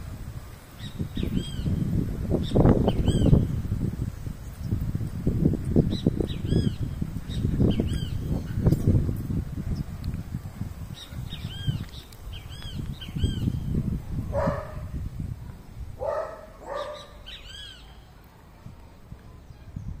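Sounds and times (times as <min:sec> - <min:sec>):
birds chirping: 0:00.8 - 0:09.0, 0:10.8 - 0:15.0, 0:16.0 - 0:18.2
harsh low bird calls: 0:00.8 - 0:09.0, 0:10.8 - 0:15.1, 0:16.0 - 0:18.1.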